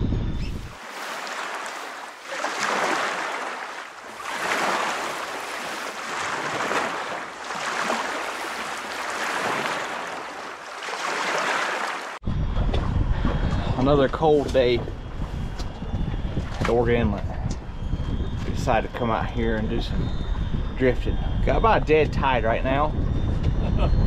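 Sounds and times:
wind buffeting microphone: 0:00.0 - 0:10.6, 0:12.2 - 0:24.0
sea waves washing in: 0:00.5 - 0:12.2.

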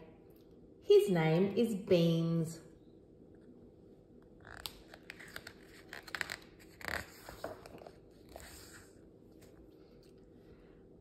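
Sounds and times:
page turning rustle: 0:04.4 - 0:10.0.

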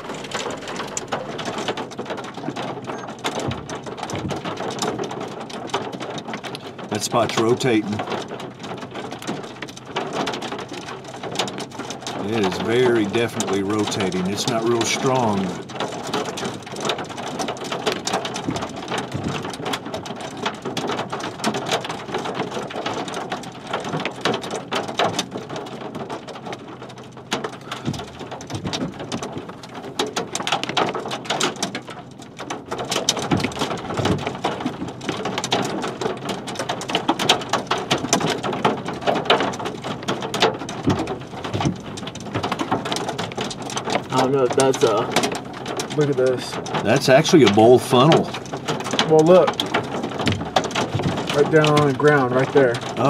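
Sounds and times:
raindrops crackling close by: 0:00.0 - 0:53.0
rain hiss: 0:09.8 - 0:24.6, 0:32.7 - 0:53.0.

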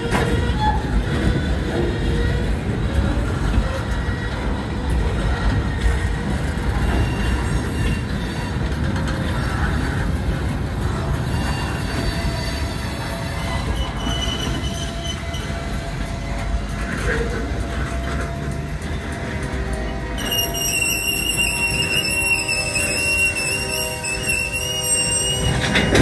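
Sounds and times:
train wheels rumbling on rails: 0:00.0 - 0:26.0
high wheel squeal: 0:06.3 - 0:10.0, 0:11.0 - 0:16.1, 0:19.8 - 0:26.0.

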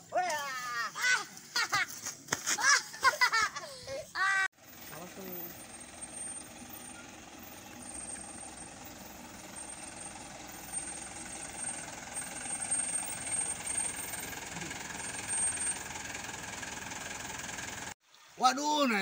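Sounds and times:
minibus engine running: 0:04.5 - 0:18.0.

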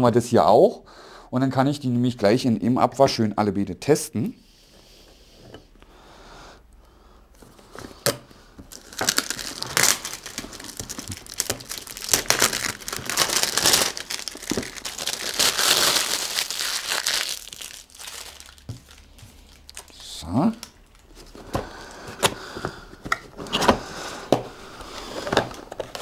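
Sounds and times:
packaging crinkling and rustling: 0:07.4 - 0:26.0.

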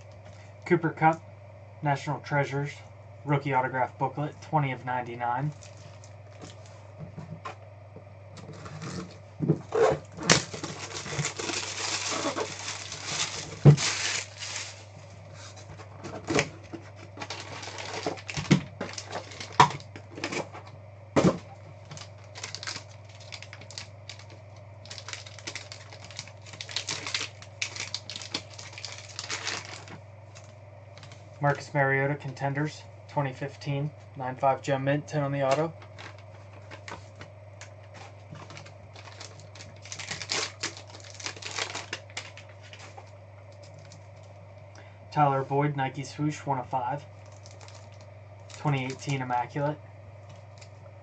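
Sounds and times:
low steady hum: 0:00.0 - 0:51.0
foil packs tearing and crinkling: 0:08.5 - 0:14.9, 0:16.3 - 0:20.5, 0:21.8 - 0:31.2, 0:38.0 - 0:44.1, 0:47.2 - 0:49.2.

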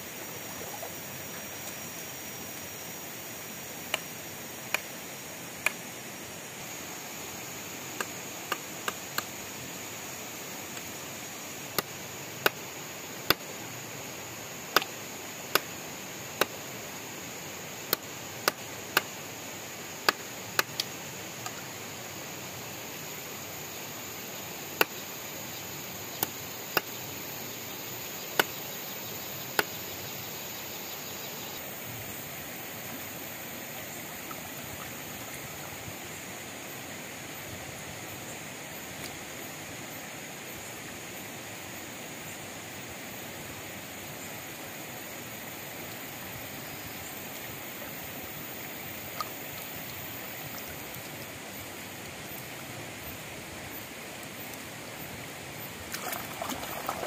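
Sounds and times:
stream rushing: 0:00.0 - 0:28.5, 0:31.6 - 0:37.7, 0:47.2 - 0:57.0.

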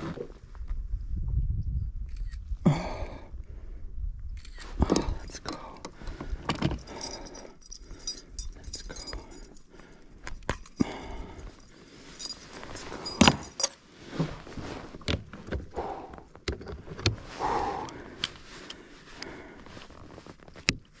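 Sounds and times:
light metallic clinks of tackle: 0:06.9 - 0:13.8.

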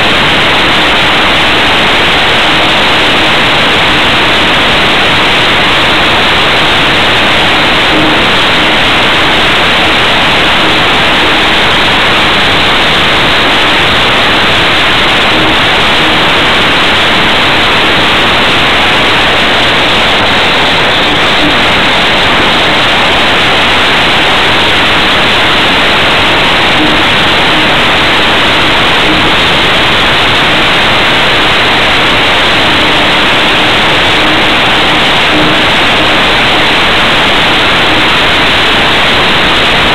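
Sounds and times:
faint hum: 0:00.0 - 0:39.9.

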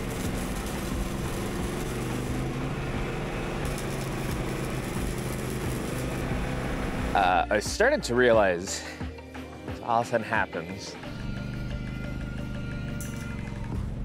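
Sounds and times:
welding hiss: 0:00.0 - 0:07.2.

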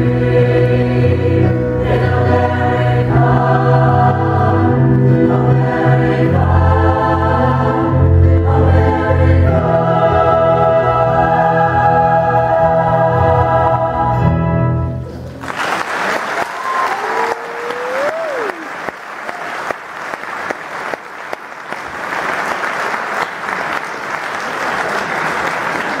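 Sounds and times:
choir singing with accompaniment: 0:00.0 - 0:14.9
audience applause: 0:15.2 - 0:26.0
person whooping: 0:16.4 - 0:19.6.

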